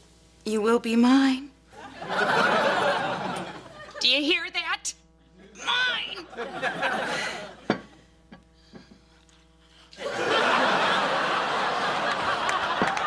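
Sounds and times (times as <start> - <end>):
studio audience laughing: 1.8 - 4.0, 6.1 - 7.7, 10.0 - 13.0.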